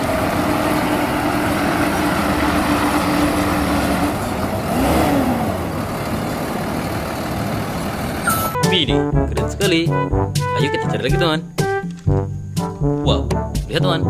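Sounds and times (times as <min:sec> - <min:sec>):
diesel truck engine running: 0:00.0 - 0:09.2.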